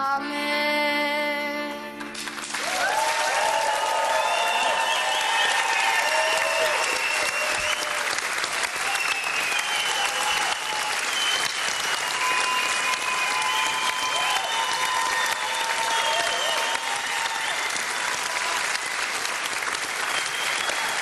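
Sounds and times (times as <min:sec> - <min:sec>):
audience applauding: 0:02.1 - 0:21.0
voices cheering: 0:02.6 - 0:18.9, 0:20.0 - 0:21.0.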